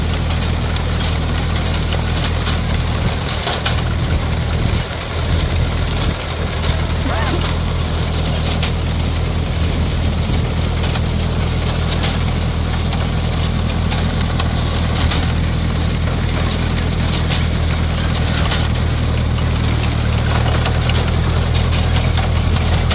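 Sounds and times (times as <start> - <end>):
tractor engine running: 0.0 - 22.9
grain binder mechanical clatter: 0.1 - 22.9.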